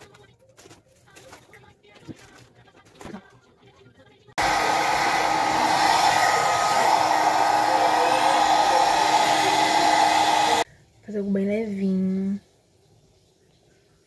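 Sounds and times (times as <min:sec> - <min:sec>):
hair dryer blowing: 0:04.4 - 0:10.7.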